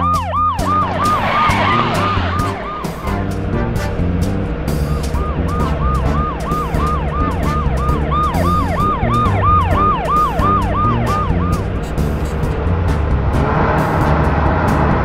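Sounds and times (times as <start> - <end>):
police siren yelping: 0.0 - 3.6, 4.9 - 12.0
background music with bass and drums: 0.0 - 15.0.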